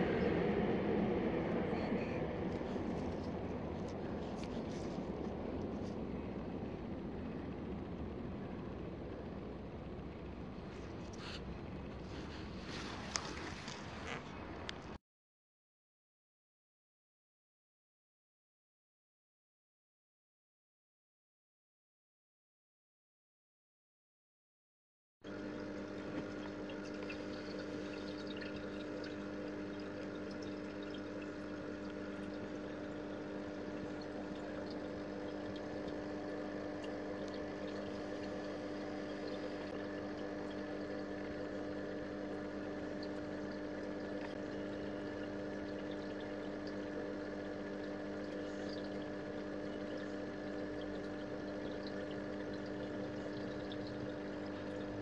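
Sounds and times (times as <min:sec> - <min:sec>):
moving water in a tub: 0:00.0 - 0:15.0, 0:25.3 - 0:55.0
small pump humming: 0:00.0 - 0:15.0, 0:25.2 - 0:55.0.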